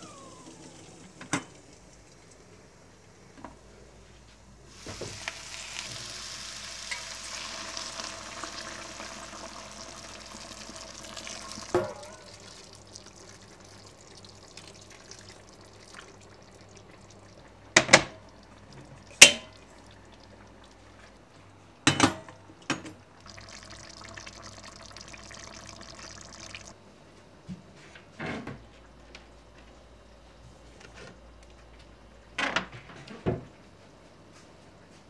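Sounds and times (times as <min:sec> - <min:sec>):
kitchen tap running: 0:00.0 - 0:02.5, 0:04.7 - 0:21.1, 0:22.7 - 0:26.7.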